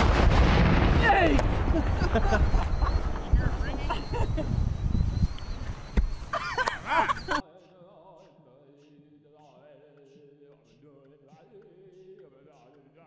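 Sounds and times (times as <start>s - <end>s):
wind on microphone: 0.0s - 7.4s
people whooping and yelling: 1.0s - 4.5s, 6.3s - 7.4s
faint music with singing: 7.4s - 13.0s.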